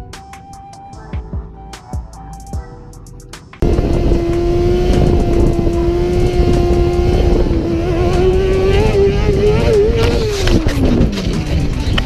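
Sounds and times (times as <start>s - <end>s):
motorcycle engine running: 3.6s - 12.0s
wind noise: 3.6s - 12.0s.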